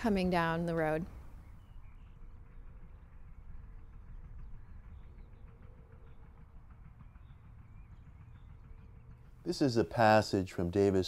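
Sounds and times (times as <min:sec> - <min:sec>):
distant road traffic rumble: 0:00.0 - 0:11.0.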